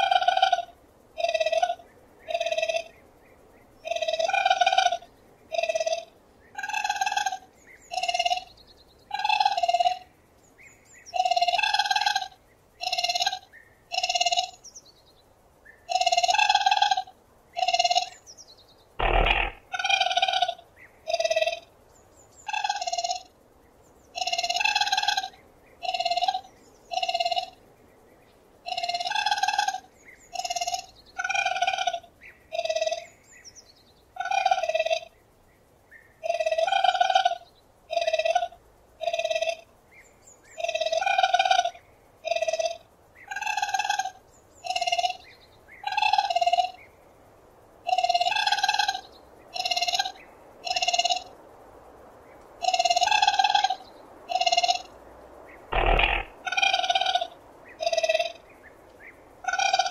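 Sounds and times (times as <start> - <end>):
raccoon giving bird-like cries: 19.0 - 20.4, 55.8 - 58.2.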